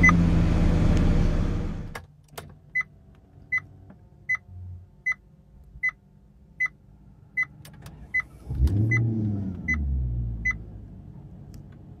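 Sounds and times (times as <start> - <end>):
car engine starting and revving: 0.0 - 2.0, 7.6 - 12.0.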